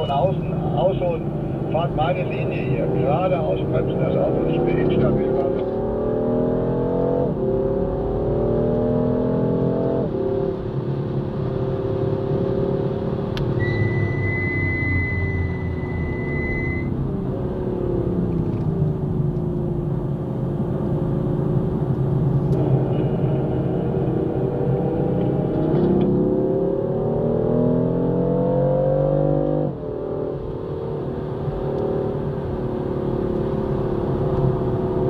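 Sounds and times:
car engine accelerating: 0.0s - 35.0s
steady high beep: 13.6s - 16.9s.

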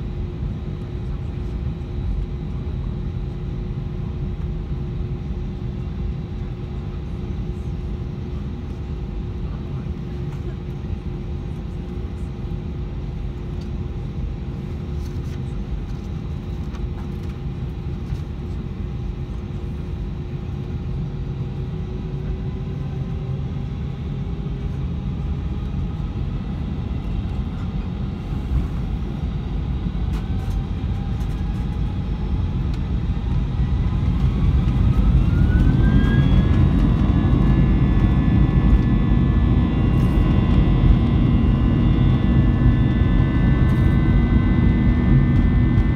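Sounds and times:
jet engine rumble in cabin: 0.0s - 45.9s
jet engines whining: 21.4s - 45.9s.

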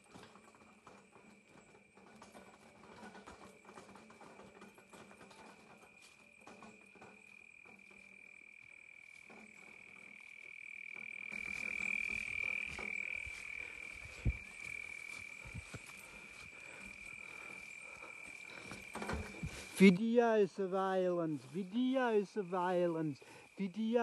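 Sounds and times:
insects chirping: 0.0s - 24.0s
footsteps through grass: 3.0s - 24.0s
frogs calling: 5.5s - 24.0s.

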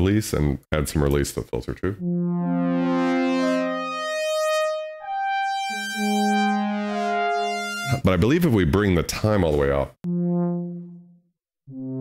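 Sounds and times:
synthesizer held chords: 2.0s - 8.5s, 10.0s - 12.0s.

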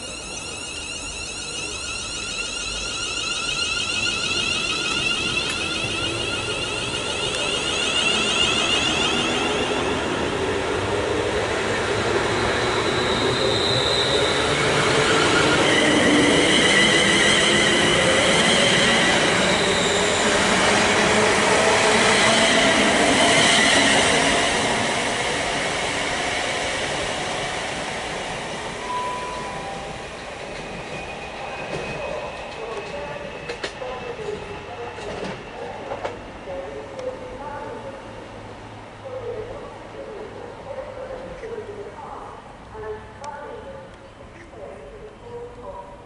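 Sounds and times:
electric train motors whining: 0.0s - 35.4s
wheel and rail noise: 0.0s - 45.8s.

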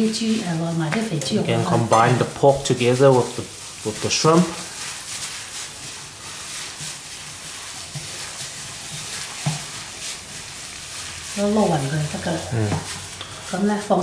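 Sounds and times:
wet squelching of kneaded filling: 0.0s - 14.0s.

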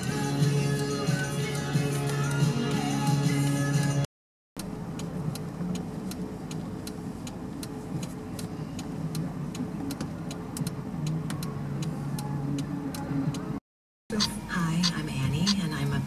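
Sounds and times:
ticking clicks: 4.6s - 13.5s
steady low rumble: 4.6s - 16.0s.

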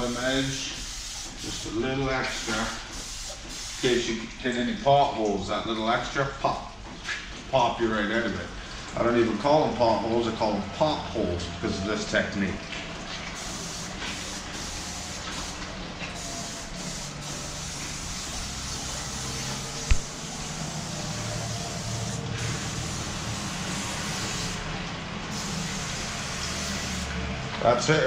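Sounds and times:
aerosol spray hissing: 0.0s - 1.7s, 13.4s - 15.6s, 16.2s - 20.2s, 20.8s - 24.6s, 25.3s - 27.1s.

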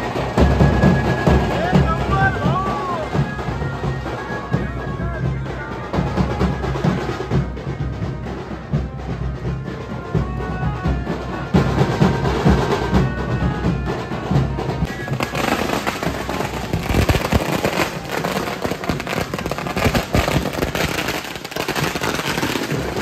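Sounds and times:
music with heavy drumbeats: 0.0s - 23.0s
firecrackers bursting: 14.9s - 23.0s.

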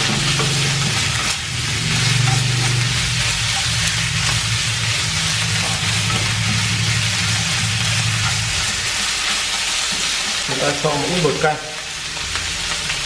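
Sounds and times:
chopsticks turning food in pan: 0.0s - 13.0s
vegetables sizzling in a frying pan: 0.0s - 13.0s
steady low hum: 0.6s - 9.4s.

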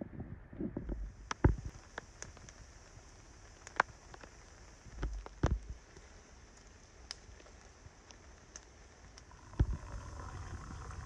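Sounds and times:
campfire crackling: 0.8s - 11.0s.

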